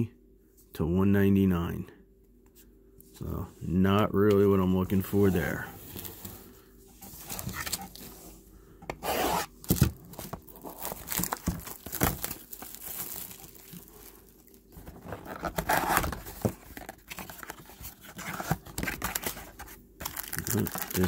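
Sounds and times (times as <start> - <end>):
plastic shrink wrap tearing: 9.2 - 17.6, 20.0 - 21.0.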